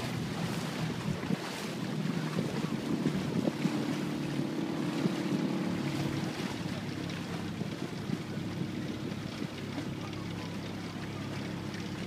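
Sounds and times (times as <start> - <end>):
boat motor humming: 0.0 - 12.0
water washing along hull: 0.0 - 12.0
wind buffeting microphone: 0.0 - 12.0.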